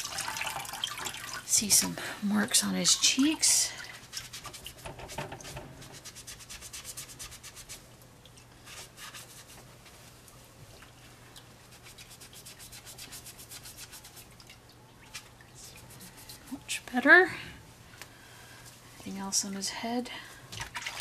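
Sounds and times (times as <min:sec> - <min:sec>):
faint steady hum: 0:00.0 - 0:21.0
pad scrubbing vinyl doll head: 0:02.7 - 0:07.9, 0:11.6 - 0:14.3.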